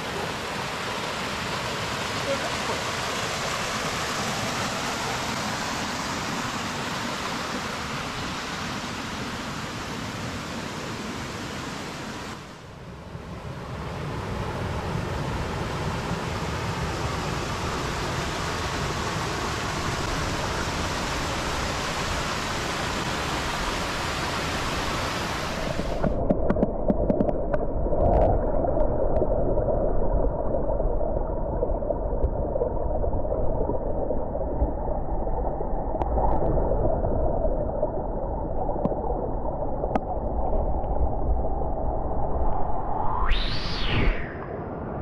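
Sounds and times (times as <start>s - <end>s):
waterfall splashing over rocks: 0.0s - 12.3s, 18.2s - 26.3s.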